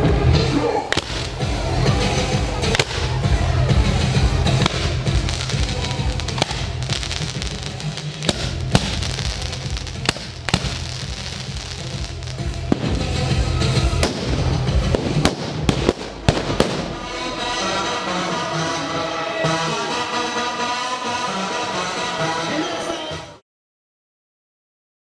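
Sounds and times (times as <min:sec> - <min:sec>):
firecrackers banging: 0:00.0 - 0:22.0
music: 0:00.0 - 0:23.4
hiss of burning flares: 0:04.0 - 0:16.9.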